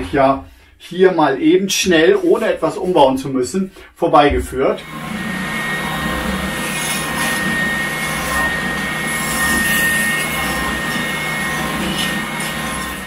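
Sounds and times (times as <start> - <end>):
belt sander running: 4.8 - 13.0.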